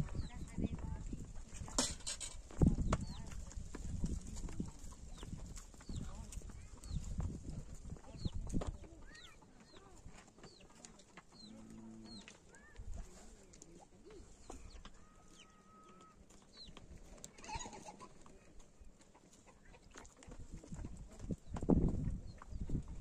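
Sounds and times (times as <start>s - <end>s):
small birds chirping: 0.0s - 1.8s, 2.5s - 23.0s
chicken clucking: 8.0s - 21.4s.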